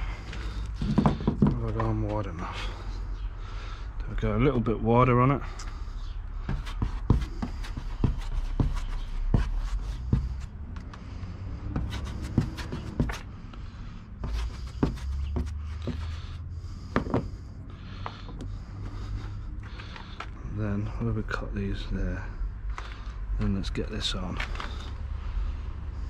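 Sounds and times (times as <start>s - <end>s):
steady low rumble: 0.0s - 26.0s
brush tapping and scraping: 0.3s - 2.5s, 6.4s - 11.0s, 11.6s - 13.3s, 14.2s - 17.3s.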